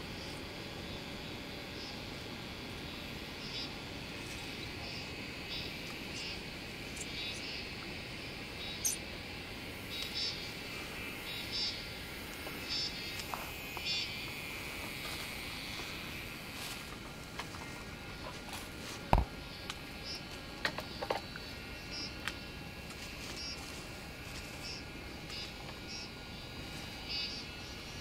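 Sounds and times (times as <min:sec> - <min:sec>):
insect chorus buzzing and chirping: 0:00.0 - 0:28.0.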